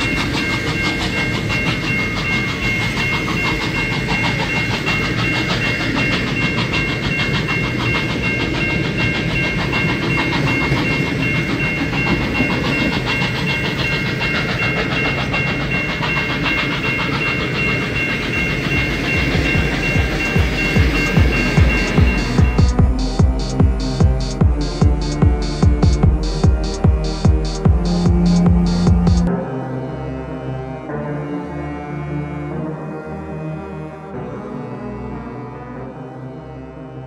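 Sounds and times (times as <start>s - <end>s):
high-pitched ringing: 0.0s - 29.3s
train wheels rattling over rails: 0.0s - 29.3s
steam locomotive working hard: 0.0s - 30.6s
diesel locomotives: 0.0s - 37.0s.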